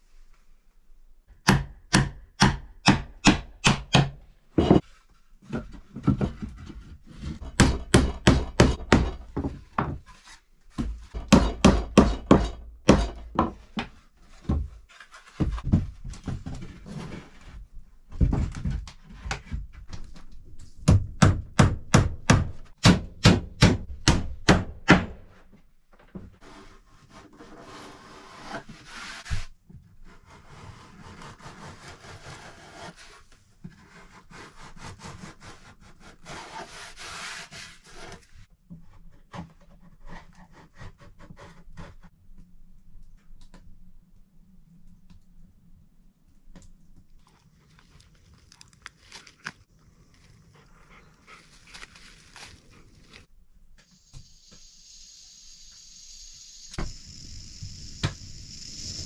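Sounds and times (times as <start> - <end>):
hammer striking wood: 1.4 - 4.8, 7.4 - 9.9, 11.2 - 13.6, 20.8 - 25.2.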